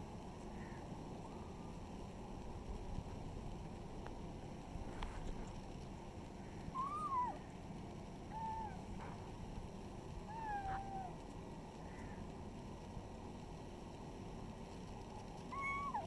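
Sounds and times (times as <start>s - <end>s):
low background noise: 0.0s - 16.0s
kitten mewing: 10.3s - 11.2s.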